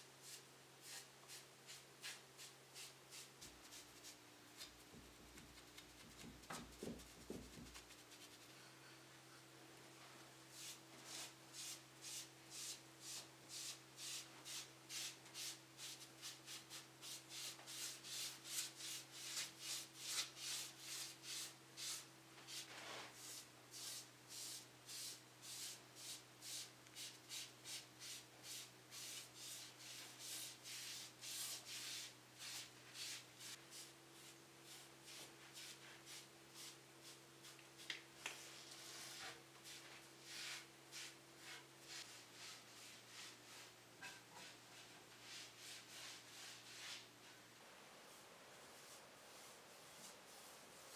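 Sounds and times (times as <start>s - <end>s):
foam brush swishes: 29.0s - 43.8s, 44.4s - 47.4s, 48.1s - 50.9s.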